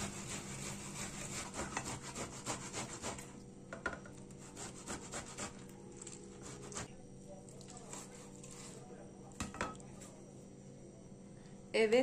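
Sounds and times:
peach grated on metal grater: 0.0s - 3.3s, 4.4s - 6.9s.

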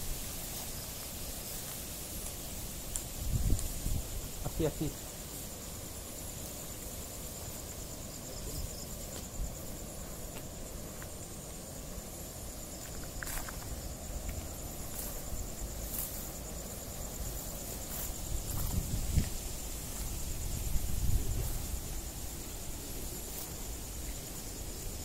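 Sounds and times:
footsteps through dry weeds: 0.0s - 4.4s, 12.4s - 24.6s
night insects trilling: 0.0s - 25.0s.

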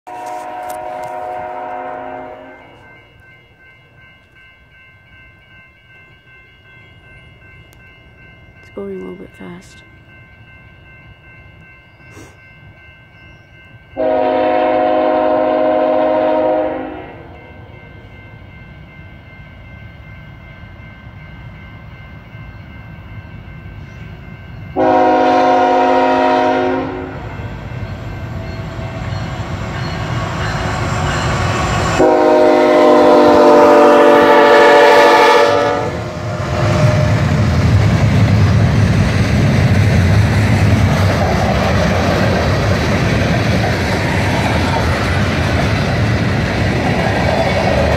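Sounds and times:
train air horn blasts: 0.1s - 2.9s, 14.0s - 17.3s, 24.8s - 27.3s, 31.9s - 37.2s.

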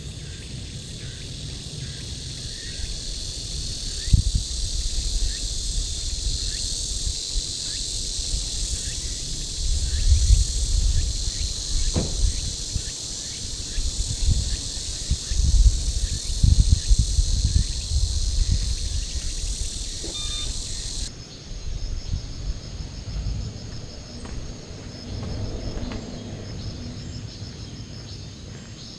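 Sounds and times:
insects chorus: 0.0s - 28.9s
low rumble: 22.1s - 27.6s.

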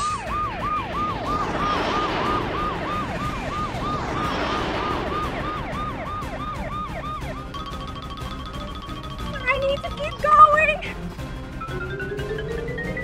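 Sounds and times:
rushing noise: 0.0s - 8.7s
police siren yelping: 0.0s - 10.8s, 11.6s - 13.0s.

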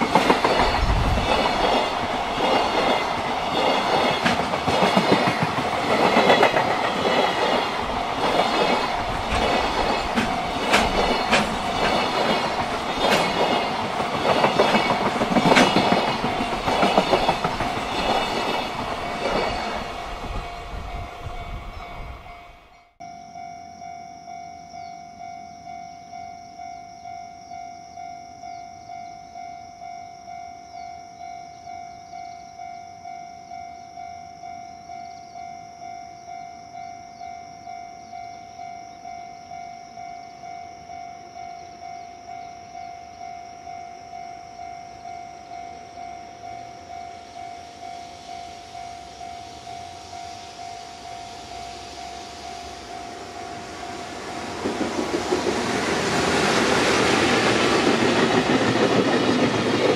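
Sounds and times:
freight train rumbling past: 0.0s - 23.0s, 38.6s - 59.9s
level crossing warning bell ringing: 0.0s - 59.9s.

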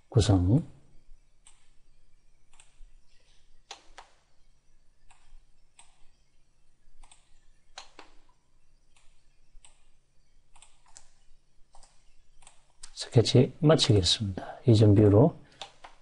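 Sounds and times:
faint low hum: 0.0s - 16.0s
computer mouse clicking: 1.4s - 1.8s, 2.5s - 4.3s, 5.0s - 6.3s, 7.0s - 13.0s, 15.5s - 16.0s.

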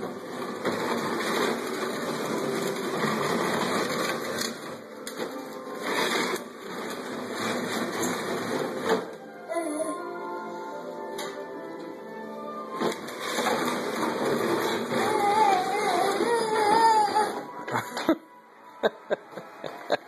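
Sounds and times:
toy cradle scraping and rattling: 0.0s - 9.3s, 12.7s - 17.6s.

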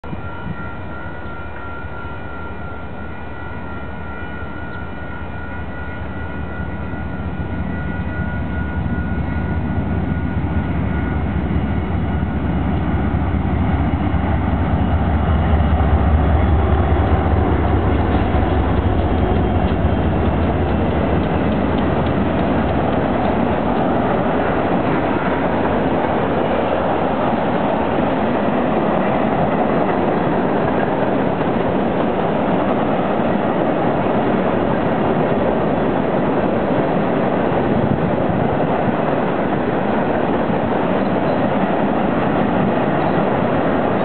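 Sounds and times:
diesel locomotive engine rumble: 0.0s - 44.0s
freight cars rolling on rails: 13.6s - 44.0s.

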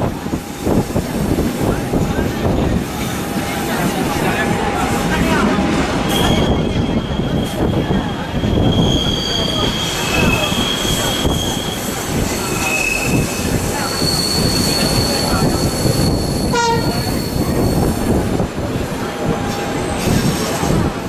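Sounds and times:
train wheels rumbling on rails: 0.0s - 21.0s
high wheel squeals: 6.1s - 18.0s.

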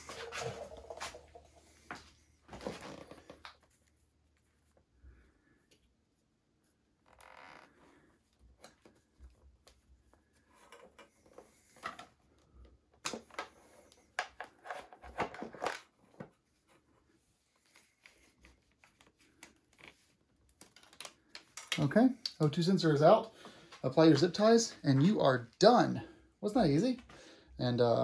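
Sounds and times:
wire rustling and rubbing: 0.0s - 5.6s.

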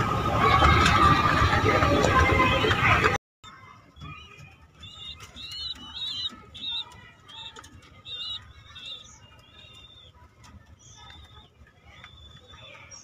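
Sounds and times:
birds chirping: 0.4s - 13.0s.

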